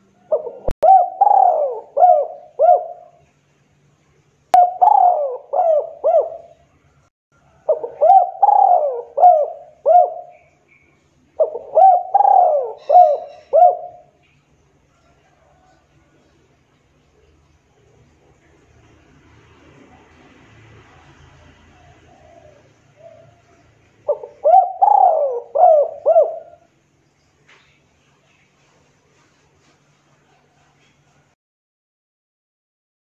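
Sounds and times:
dove cooing: 0.1s - 3.3s, 4.6s - 6.7s, 7.5s - 10.5s, 11.4s - 14.2s, 21.3s - 26.7s.

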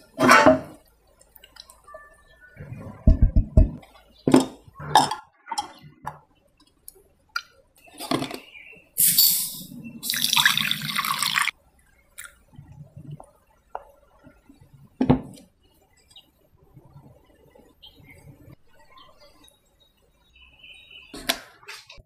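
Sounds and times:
liquid pouring into glass cups: 9.4s - 11.5s.

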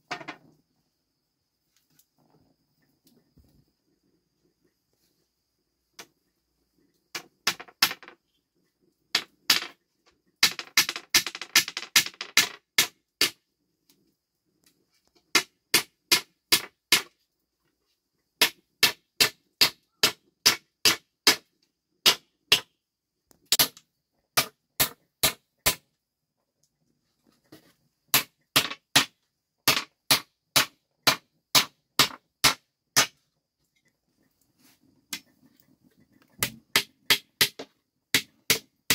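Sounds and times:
hammer driving nails into wood: 15.3s - 17.1s, 18.4s - 22.7s, 23.5s - 23.8s, 24.4s - 25.8s, 28.1s - 33.2s, 36.4s - 38.9s.

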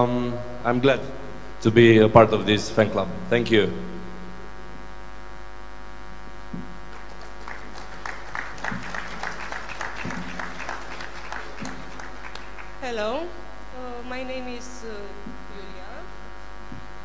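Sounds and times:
electrical mains hum: 0.0s - 17.0s
audience applause: 6.9s - 13.3s.

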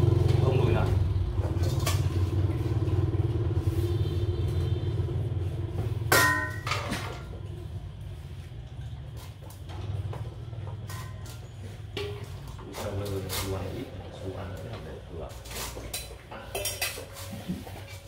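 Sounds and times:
steel bowl clanking: 15.4s - 17.5s.

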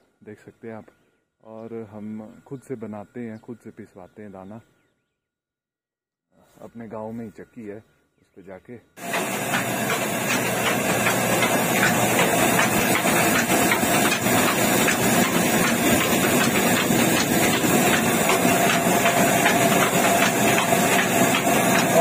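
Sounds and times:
grain mill grinding: 9.0s - 22.0s.

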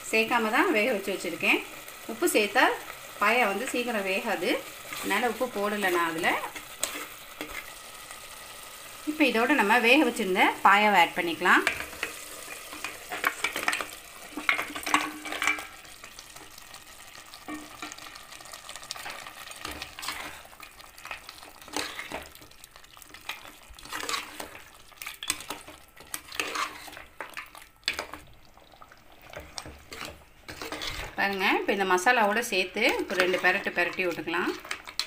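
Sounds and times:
light sizzle: 0.0s - 35.0s
metal spoon scraping a pot: 4.8s - 7.7s, 11.6s - 15.8s, 19.6s - 22.4s, 23.2s - 28.2s, 29.3s - 31.2s.

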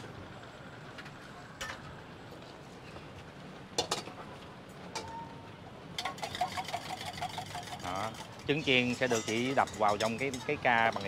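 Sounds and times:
eggs frying hiss: 6.0s - 11.0s
metal utensils clinking: 6.0s - 11.0s.

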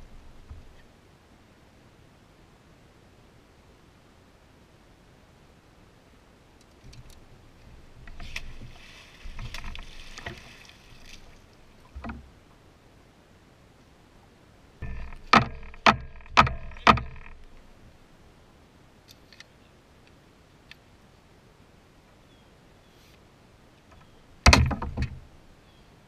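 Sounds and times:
clatter of knocks: 14.8s - 17.4s, 24.4s - 25.2s
sharp knocks: 14.8s - 17.5s, 24.4s - 25.2s.

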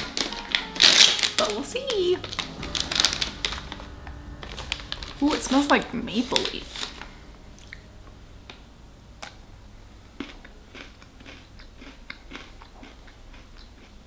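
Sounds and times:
person chewing crunchy pretzel: 10.2s - 14.0s.

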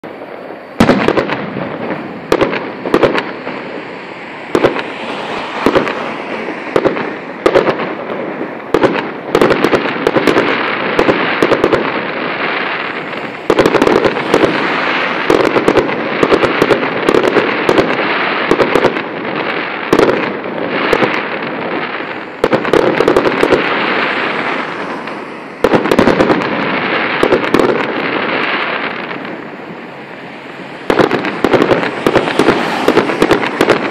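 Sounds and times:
fireworks bangs: 0.0s - 33.9s
burning shells hissing: 0.1s - 33.9s.

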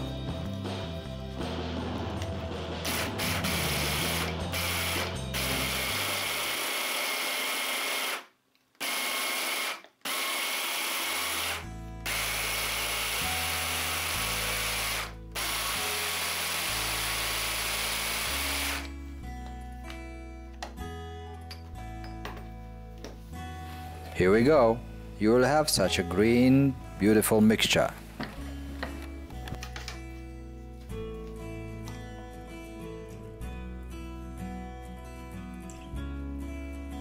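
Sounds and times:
electric hand blender chopping: 2.9s - 18.9s.

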